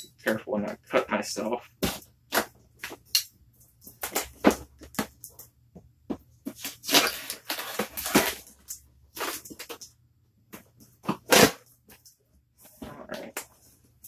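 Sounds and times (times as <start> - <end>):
cardboard crackling and scraping: 6.3 - 9.8.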